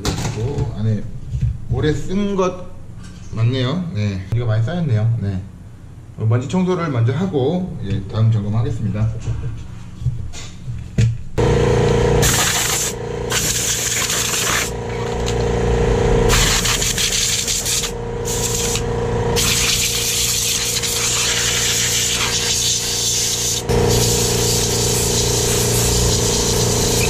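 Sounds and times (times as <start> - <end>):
steady hum: 0.2 - 27.0
compressed air blasts hissing: 12.2 - 14.8, 16.3 - 27.0.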